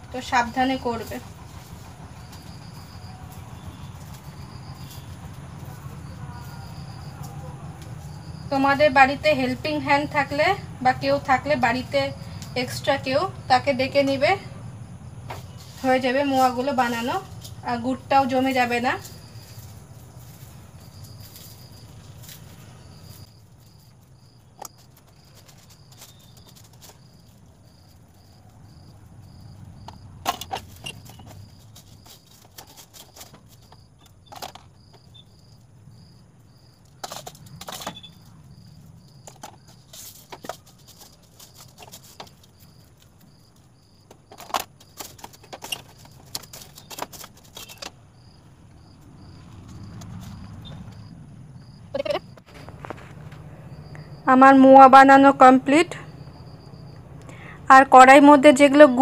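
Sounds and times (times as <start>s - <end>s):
faint high chirp: 50.6s - 51.0s.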